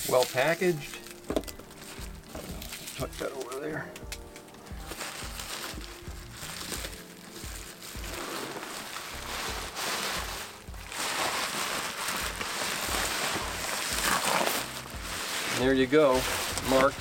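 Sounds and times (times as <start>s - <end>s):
background music with bass beat: 0.0s - 11.4s
bubble wrap crinkling: 0.0s - 17.0s.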